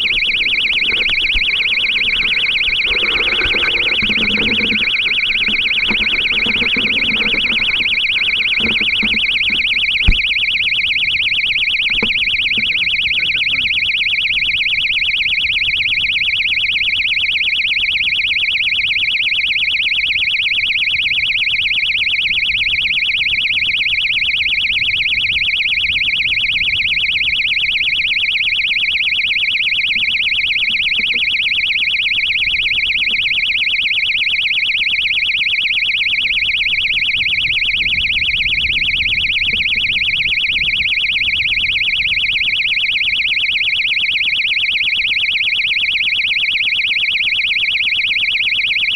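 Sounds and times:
high-pitched buzzer tone: 0.0s - 17.2s, 26.6s - 43.8s.

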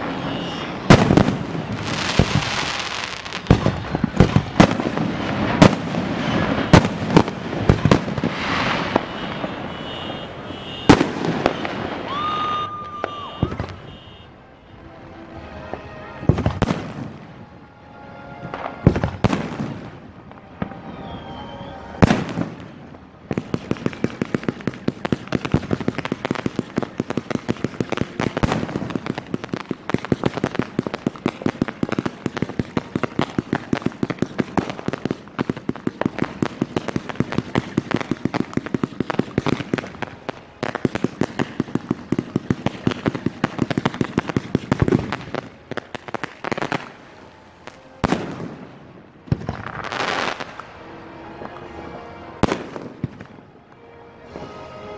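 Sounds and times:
heavy firework booms: 0.0s - 12.3s, 12.9s - 14.2s
rapid firework bangs and crackles: 0.0s - 14.2s, 16.2s - 17.4s, 18.5s - 20.8s, 22.0s - 50.7s.

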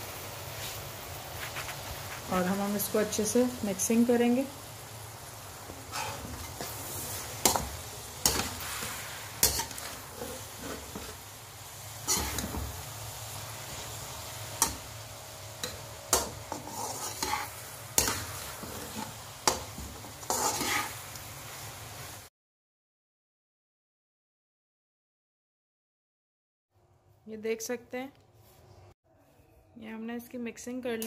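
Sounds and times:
food sizzling: 0.0s - 22.3s
metal spatula scraping frying pan: 5.7s - 11.3s, 11.9s - 12.9s, 15.6s - 21.0s.

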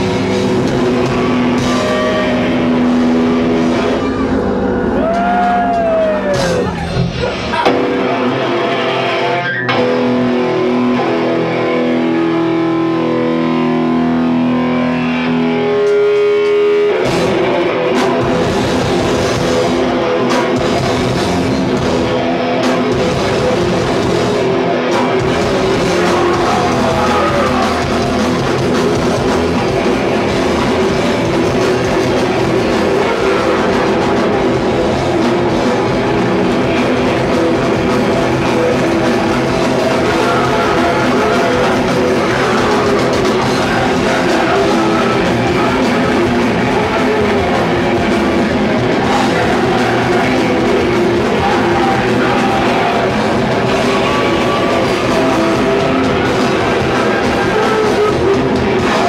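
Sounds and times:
loud distorted rock band: 0.0s - 59.0s
held guitar notes ringing: 7.5s - 18.0s.

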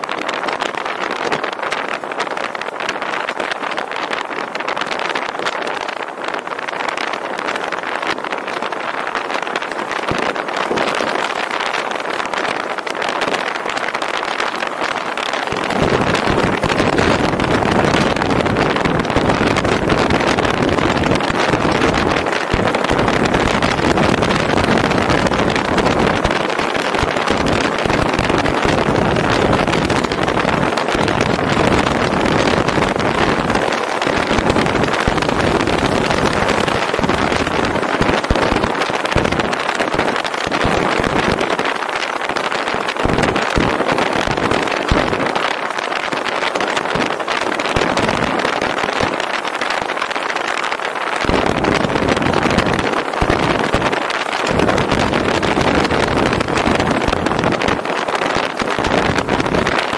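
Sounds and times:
wind buffeting microphone: 0.0s - 59.9s
car road and wind noise: 1.9s - 39.7s.

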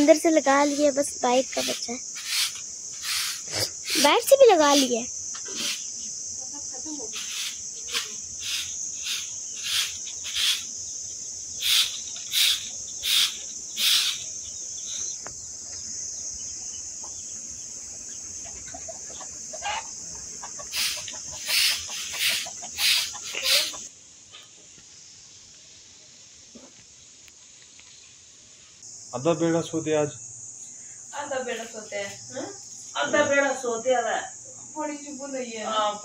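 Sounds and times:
high-pitched insect drone: 0.0s - 23.9s, 28.8s - 36.0s
broom sweeping concrete: 0.5s - 5.9s, 7.0s - 10.7s, 11.6s - 14.3s, 20.7s - 23.9s.

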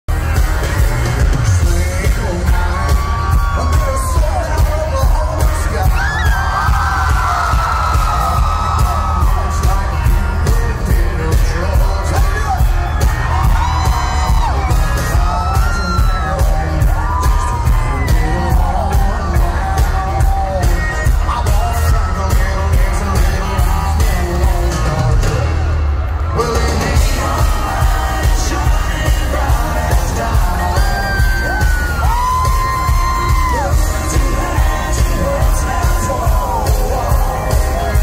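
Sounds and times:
crowd yelling and whooping: 0.1s - 38.0s
live country band: 0.1s - 38.0s
man singing lead vocal: 0.1s - 38.0s
steady drum beat: 0.1s - 38.0s.

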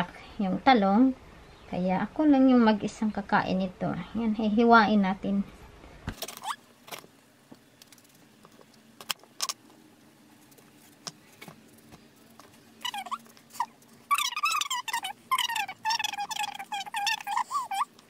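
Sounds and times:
faint steady hum: 0.0s - 18.0s
falling chirping calls: 12.8s - 17.9s.

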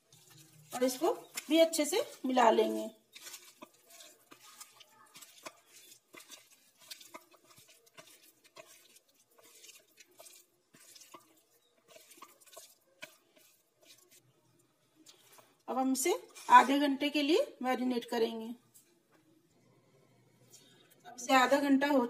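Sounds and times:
hand mixing chicken in marinade: 0.0s - 17.4s.

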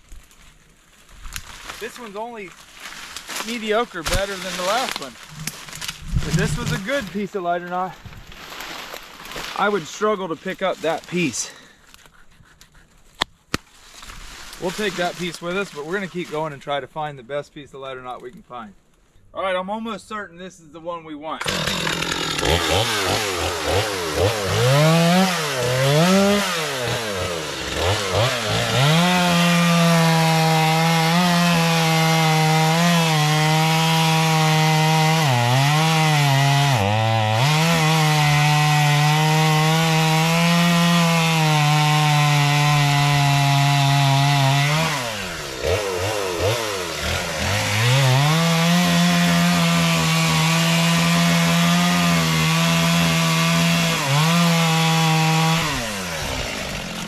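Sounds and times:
chainsaw cutting wood: 1.3s - 9.8s, 21.4s - 57.0s.

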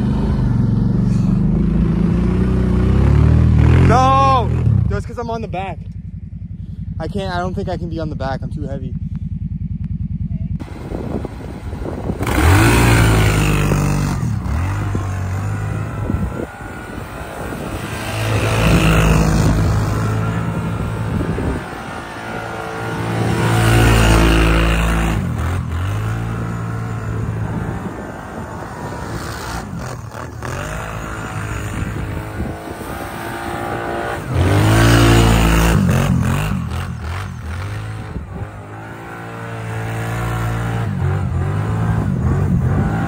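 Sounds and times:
atv engine revving: 0.0s - 43.0s
wheels churning through snow: 10.7s - 43.0s.

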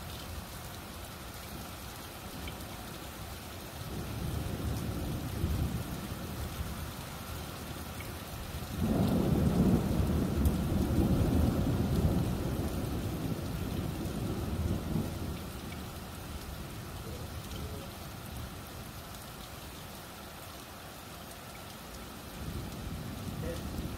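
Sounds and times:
steady rain: 0.0s - 23.9s
thunder rumbling: 8.7s - 15.6s, 22.4s - 23.9s.

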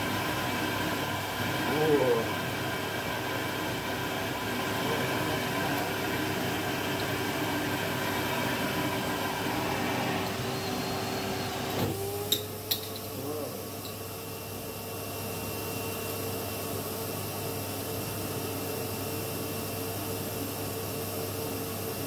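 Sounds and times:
vacuum motor rushing and humming: 0.0s - 15.0s.

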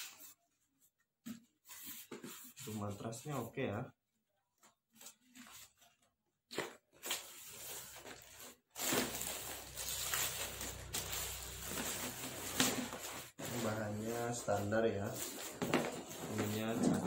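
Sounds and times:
foam mat rustling and scraping: 7.5s - 17.0s.

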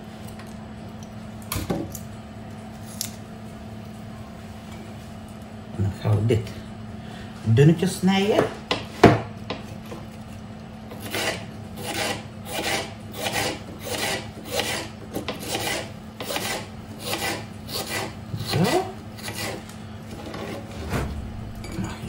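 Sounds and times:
knife slicing onion on board: 10.9s - 20.6s.

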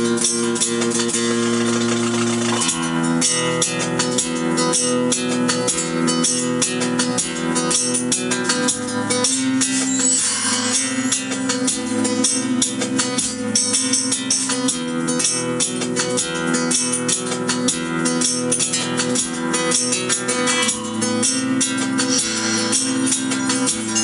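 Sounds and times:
acoustic guitar music from phone: 0.0s - 24.0s.

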